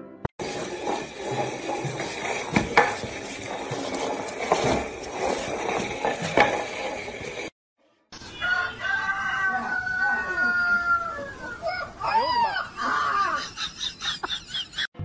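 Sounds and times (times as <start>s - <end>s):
pot scraping on tiled floor: 0.4s - 7.6s.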